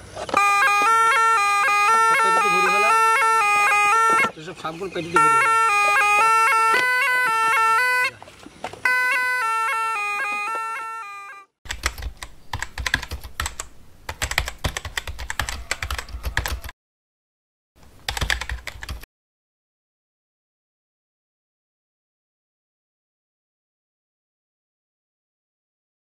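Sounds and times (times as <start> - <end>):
reed pipe melody: 0.0 - 11.6
fast keyboard-like clicks: 11.7 - 16.7, 18.0 - 19.1.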